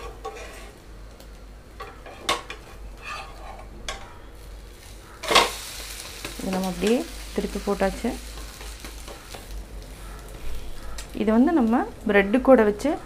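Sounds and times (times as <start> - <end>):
spatula scraping a pan: 0.0 - 0.8, 1.8 - 4.1
faint sizzle: 0.0 - 13.0.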